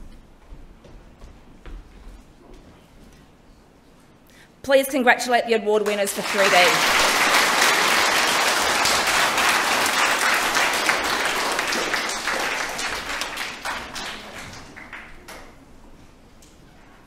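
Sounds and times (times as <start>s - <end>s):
audience applauding: 5.8s - 15.5s.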